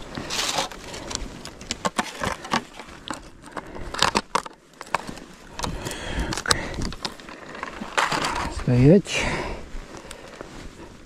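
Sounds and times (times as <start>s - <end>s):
hands handling fish and tackle: 0.0s - 8.7s.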